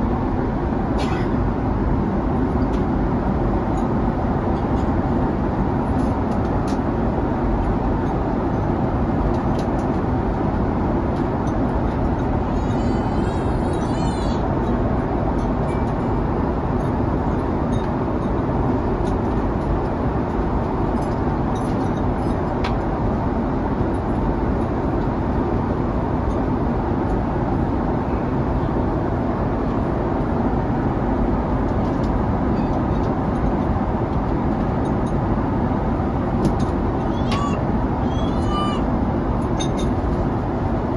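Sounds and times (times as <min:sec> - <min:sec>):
jet cabin engine drone: 0:00.0 - 0:40.9.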